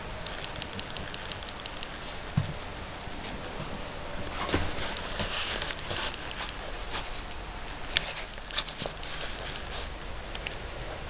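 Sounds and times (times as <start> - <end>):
steady hiss: 0.0 - 11.0
footsteps: 0.1 - 10.0
handling clicks and taps: 0.2 - 2.5, 4.5 - 7.0, 7.7 - 10.6.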